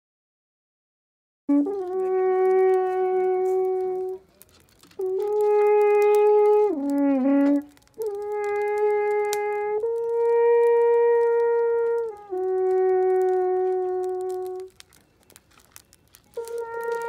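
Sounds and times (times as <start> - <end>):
alphorn long held notes: 1.5 - 4.3, 5.0 - 14.8, 16.3 - 17.0.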